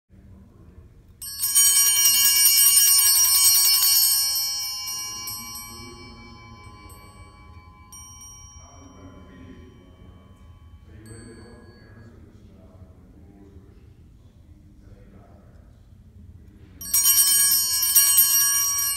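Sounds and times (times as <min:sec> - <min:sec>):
brass bells jangling: 0:01.2 - 0:12.1, 0:16.8 - 0:18.9.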